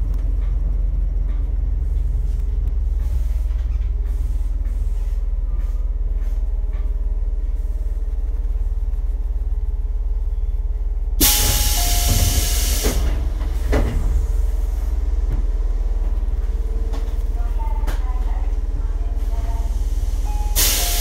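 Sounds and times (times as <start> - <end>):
compressed air hiss: 11.2 - 13.2, 19.6 - 21.0.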